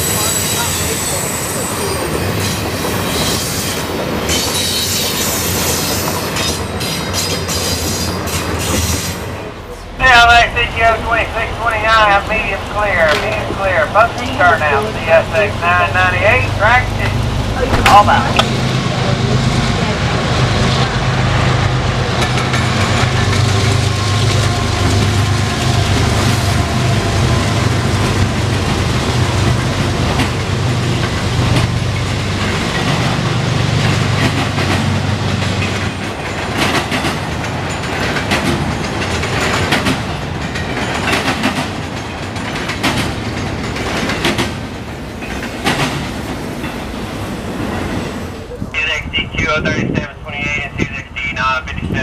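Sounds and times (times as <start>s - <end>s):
diesel locomotive drone: 0.0s - 52.0s
train wheels clicking over rail joints: 29.4s - 48.1s.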